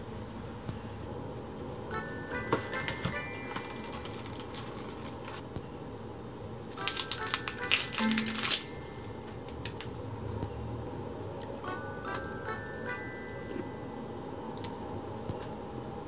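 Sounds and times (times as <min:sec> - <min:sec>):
soft plinking background music: 0:00.0 - 0:16.0
snack wrapper crinkling and tearing: 0:02.9 - 0:05.4, 0:06.7 - 0:09.9.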